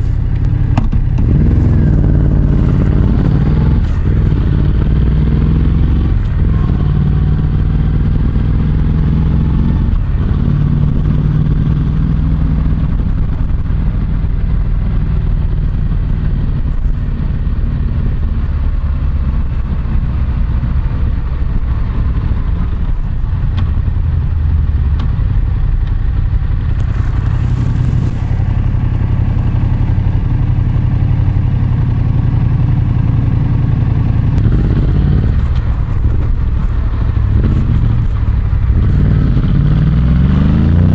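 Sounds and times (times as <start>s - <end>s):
motorcycle engine exhaust note: 0.0s - 40.9s
fabric rustling: 26.9s - 28.3s.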